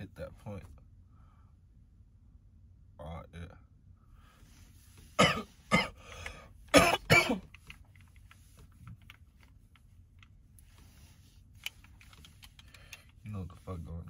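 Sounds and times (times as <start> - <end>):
man coughing hard: 5.2 - 6.1, 6.7 - 7.5.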